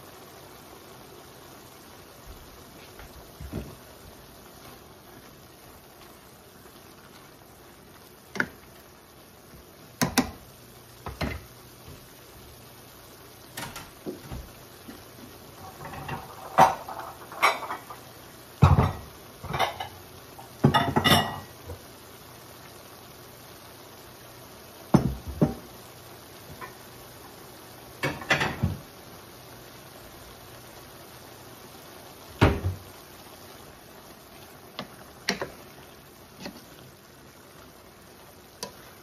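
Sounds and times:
clatter of dishes and pans: 0:11.1 - 0:11.5, 0:15.6 - 0:20.0, 0:20.6 - 0:21.8, 0:25.0 - 0:25.7, 0:28.0 - 0:28.8.

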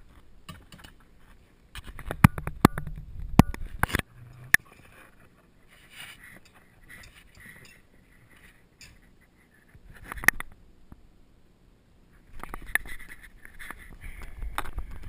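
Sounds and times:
fabric rustling and scraping: 0:03.6 - 0:10.3.

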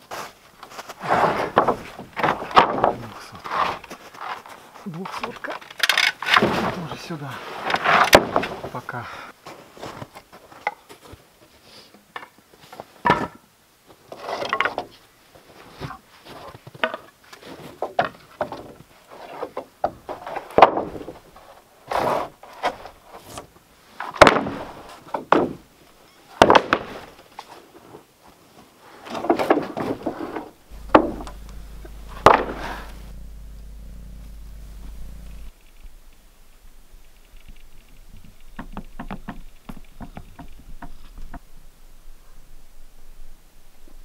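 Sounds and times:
boards scraping on boards: 0:00.1 - 0:04.6, 0:07.4 - 0:08.7, 0:21.9 - 0:23.5, 0:29.1 - 0:31.5
cat purring: 0:30.7 - 0:35.5
wooden boards knocking: 0:30.8 - 0:32.5.

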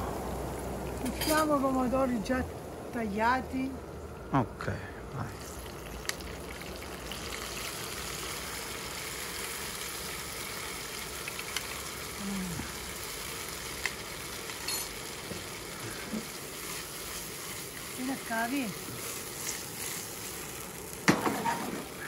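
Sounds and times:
tomatoes sizzling in oil: 0:05.2 - 0:22.0.

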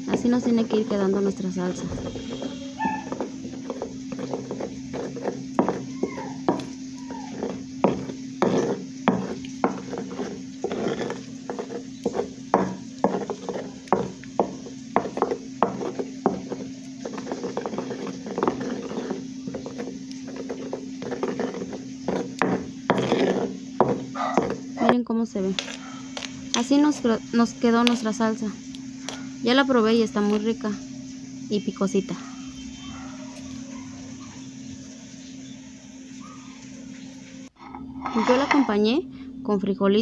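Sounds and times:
stone pestle grinding in mortar: 0:00.1 - 0:25.0, 0:25.6 - 0:27.0, 0:37.6 - 0:38.8.

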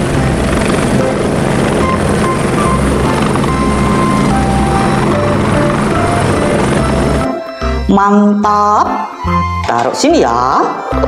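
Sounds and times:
helicopter rotor and engine whir: 0:00.0 - 0:07.9.

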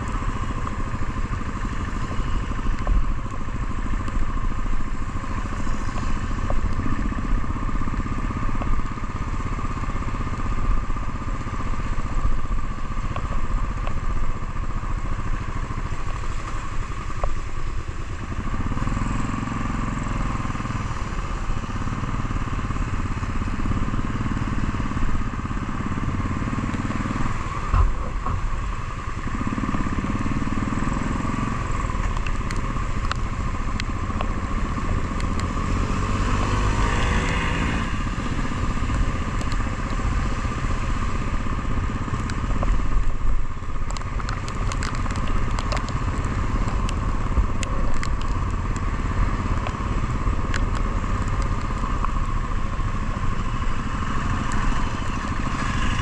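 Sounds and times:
motorcycle engine running: 0:00.0 - 0:56.0
wind rumble on microphone: 0:00.0 - 0:56.0
sharp ticks: 0:31.9 - 0:34.4.

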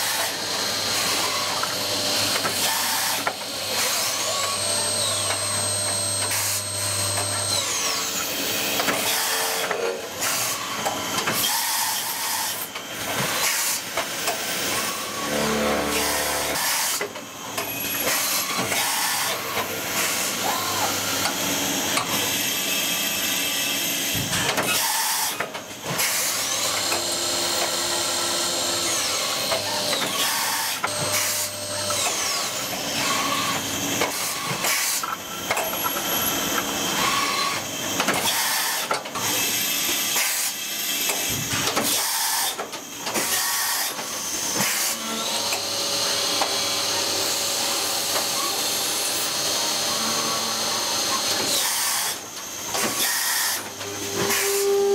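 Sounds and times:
high spindle whine: 0:14.6 - 0:17.2.

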